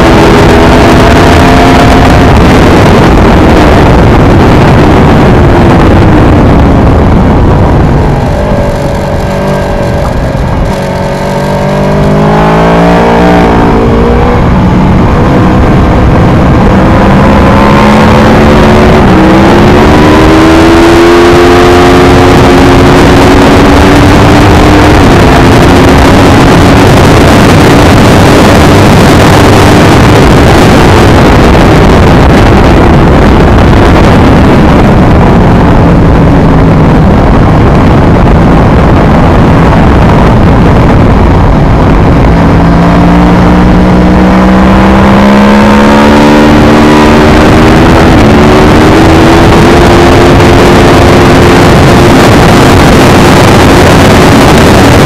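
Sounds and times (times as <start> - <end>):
motorcycle engine revving: 0.0 - 55.0
wind rushing: 0.0 - 55.0.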